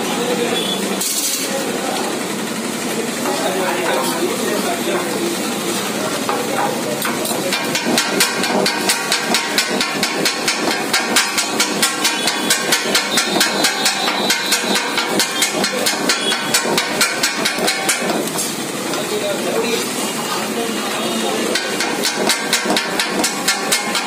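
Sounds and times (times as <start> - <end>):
metal blades striking a griddle: 6.2 - 18.6, 21.3 - 24.0.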